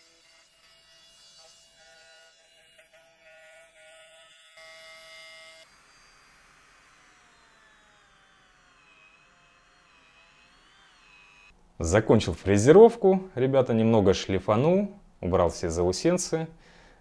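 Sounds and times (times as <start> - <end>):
milling spindle motor whining: 5.6 - 11.5.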